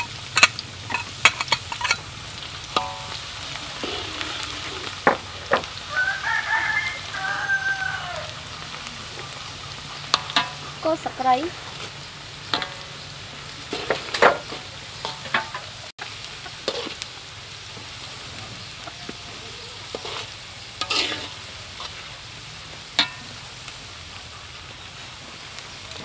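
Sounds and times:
metal spatula scraping wok: 0:00.0 - 0:05.8, 0:08.5 - 0:15.9, 0:16.5 - 0:17.1, 0:19.3 - 0:24.2
food sizzling in oil: 0:00.0 - 0:26.0.

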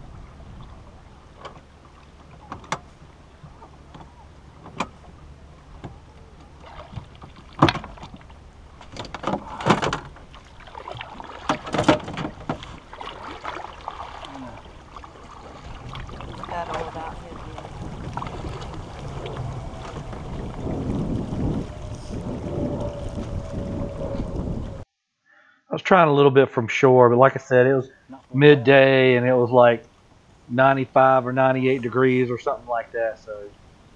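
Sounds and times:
paddle splashing through water: 0:00.0 - 0:24.4
knocks against canoe hull: 0:11.4 - 0:12.8.

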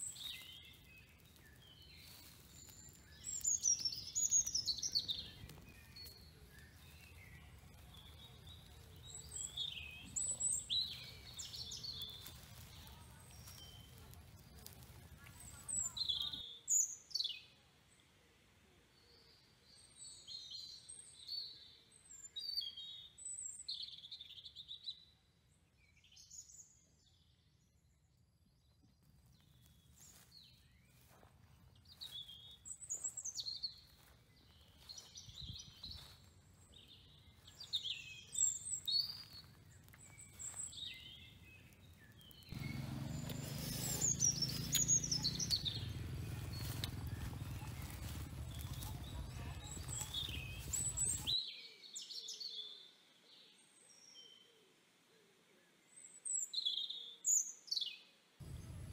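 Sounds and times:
birds chirping: 0:00.0 - 0:17.3, 0:29.4 - 0:51.4.

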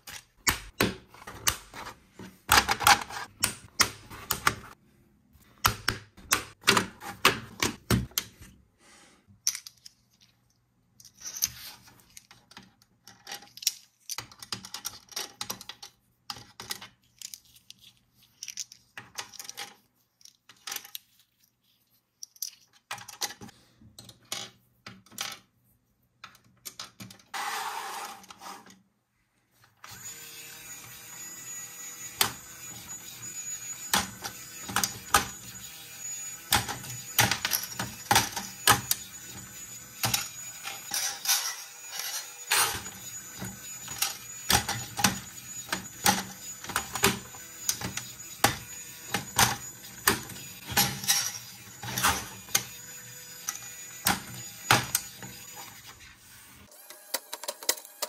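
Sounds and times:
small toy motor running: 0:29.9 - 0:58.0.

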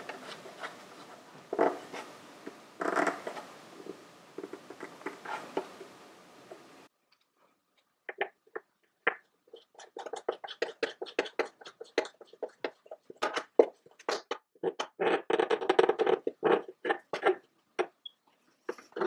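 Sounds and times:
hands clicking and knocking parts: 0:07.1 - 0:18.1.

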